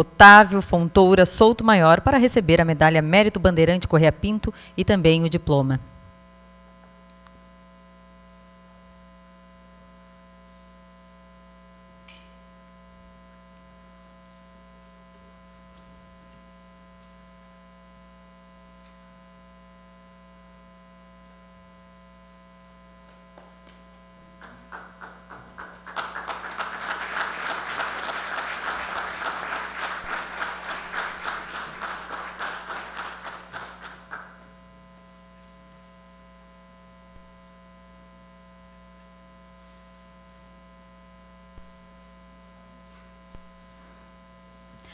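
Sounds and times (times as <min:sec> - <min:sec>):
mains hum: 0:00.0 - 0:44.9
audience applauding: 0:24.4 - 0:34.5.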